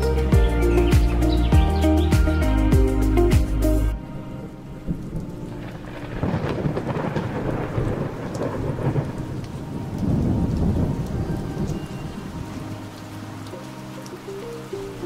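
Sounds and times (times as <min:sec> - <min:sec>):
heavy rain: 0:00.0 - 0:15.0
rolling thunder: 0:04.4 - 0:12.7.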